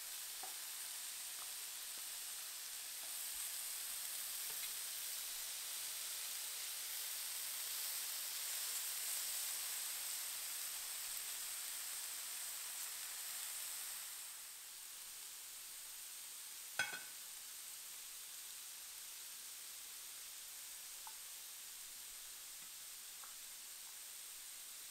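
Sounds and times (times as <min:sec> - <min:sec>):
meat sizzling on grill: 0:00.0 - 0:24.9
cookware clinking on ceramic: 0:16.8 - 0:17.2.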